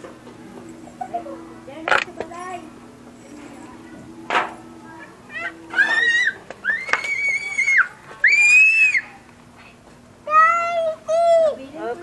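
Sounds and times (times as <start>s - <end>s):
high-pitched squealing cries: 5.3s - 9.2s.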